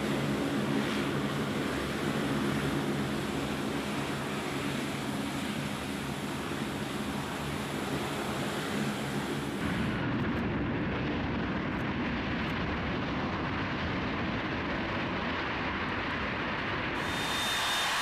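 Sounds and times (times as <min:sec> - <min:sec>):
jet plane rolling down runway: 0:00.0 - 0:18.0
propeller engine drone: 0:00.0 - 0:18.0.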